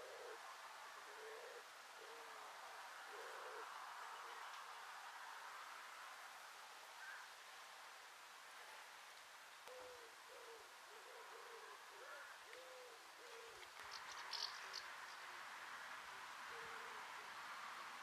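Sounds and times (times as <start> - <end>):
bird cooing: 0.0 - 2.4, 3.1 - 4.5, 9.7 - 14.8, 16.5 - 17.2
light hiss: 0.0 - 18.0.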